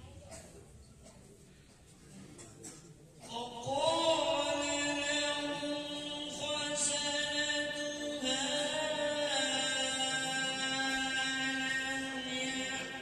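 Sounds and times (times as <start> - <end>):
man reciting melodically: 3.2 - 13.0.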